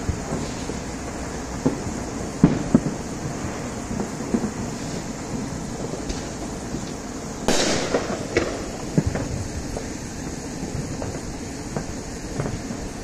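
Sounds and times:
distant fireworks bangs: 0:00.0 - 0:13.0
firework hissing burst: 0:00.0 - 0:13.0
steady background hiss: 0:00.0 - 0:13.0.

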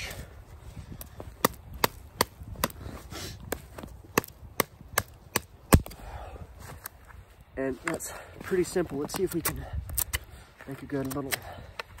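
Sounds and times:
knife chopping frozen sapling: 0:01.4 - 0:06.0.

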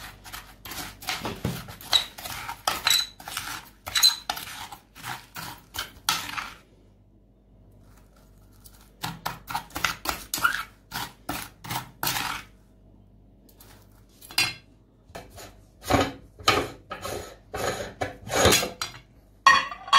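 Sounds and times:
metal spoon scraping powder on glass: 0:00.0 - 0:06.5.

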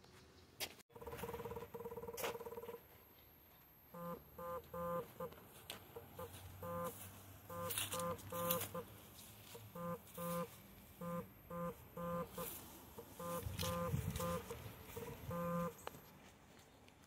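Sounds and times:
short electronic beeps: 0:03.8 - 0:05.3, 0:06.2 - 0:08.9, 0:09.7 - 0:15.8.

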